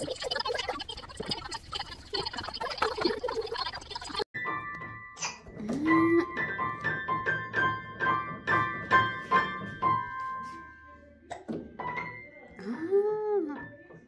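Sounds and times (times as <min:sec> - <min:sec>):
piano-like keyboard notes: 0:04.4 - 0:14.0.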